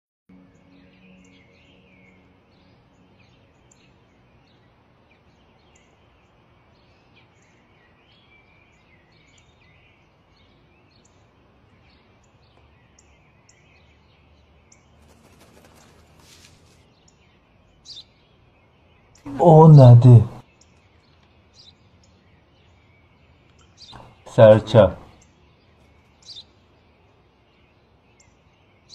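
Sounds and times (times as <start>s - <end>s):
small birds chirping: 0.3s - 28.9s
papery rustling: 15.3s - 16.9s.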